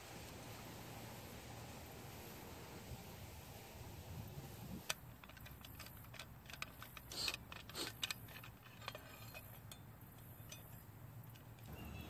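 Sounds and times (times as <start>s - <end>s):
screwdriver clicking in bolts: 4.9s - 11.7s
screwdriver scraping: 5.2s - 9.8s.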